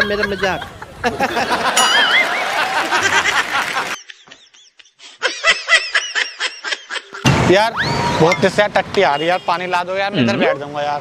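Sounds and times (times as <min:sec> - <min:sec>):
people laughing: 0:00.0 - 0:07.3.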